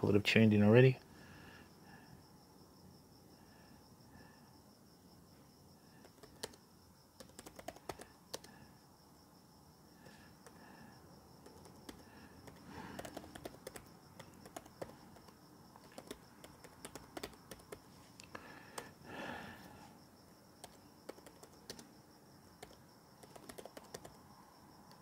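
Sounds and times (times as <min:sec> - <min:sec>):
crickets chirping: 0:00.0 - 0:25.0
laptop keyboard typing: 0:05.9 - 0:08.7, 0:10.0 - 0:10.7, 0:11.4 - 0:19.0, 0:20.6 - 0:22.0, 0:22.6 - 0:24.2.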